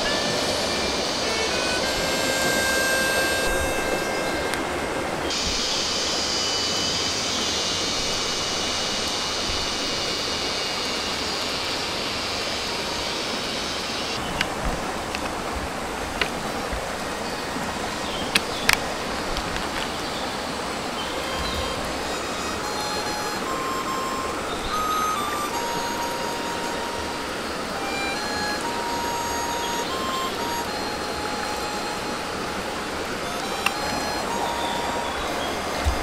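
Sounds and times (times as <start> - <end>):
high steady shrill: 0.0 - 36.0
stream running over rocks: 0.0 - 36.0
sharp clicks: 14.1 - 15.4.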